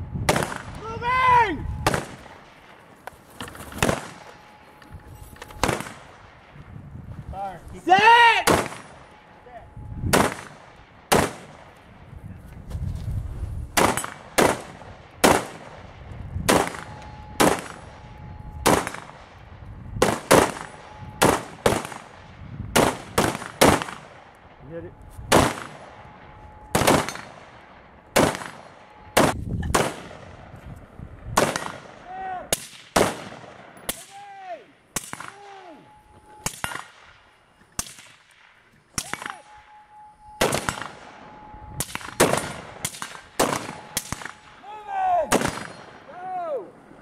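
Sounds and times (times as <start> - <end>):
rifle gunshots: 0.3 - 0.8, 1.8 - 2.7, 3.4 - 4.6, 5.5 - 6.5, 8.4 - 9.3, 10.1 - 11.8, 13.8 - 19.4, 20.0 - 24.3, 25.3 - 30.5, 31.4 - 34.1, 35.0 - 35.7, 36.4 - 37.2, 40.4 - 41.2, 41.8 - 44.6, 45.3 - 46.1.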